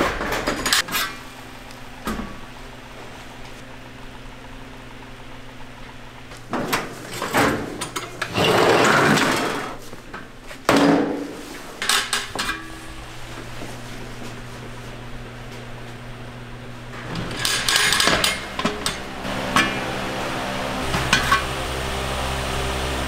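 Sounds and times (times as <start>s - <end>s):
metal clattering and clanking: 0.0s - 1.2s, 17.0s - 20.0s, 20.9s - 21.6s
steady machine hum: 0.0s - 23.0s.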